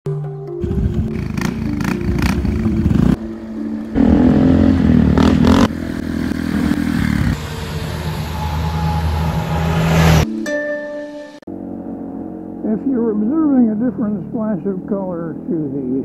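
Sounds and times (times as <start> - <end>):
motorcycle engines revving: 0.6 - 10.3, 11.5 - 16.0.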